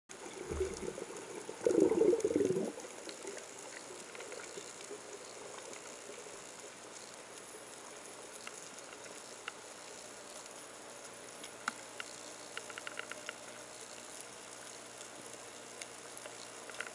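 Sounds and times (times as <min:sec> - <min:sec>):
faint underwater hiss: 0:00.1 - 0:16.9
sharp clicks and crackles: 0:00.1 - 0:16.9
rush of water: 0:00.4 - 0:02.8.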